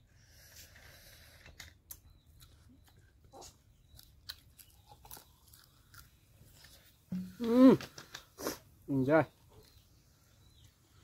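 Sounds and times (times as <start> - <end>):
person chewing with mouth clicks: 1.4 - 7.5
small crunches: 1.4 - 8.6.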